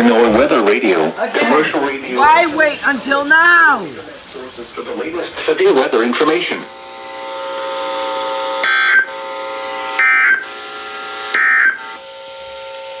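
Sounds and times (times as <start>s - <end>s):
steady electronic buzzing tone: 6.7s - 13.0s.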